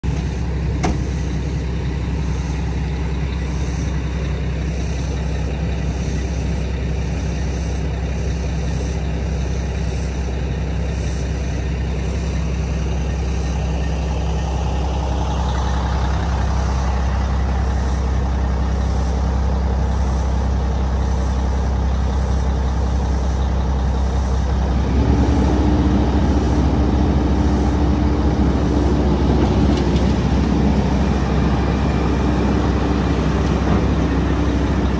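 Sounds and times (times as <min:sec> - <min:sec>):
diesel track loader running: 0:00.0 - 0:34.9
steady whine: 0:00.0 - 0:34.9
machine moving on tracks: 0:24.9 - 0:34.9.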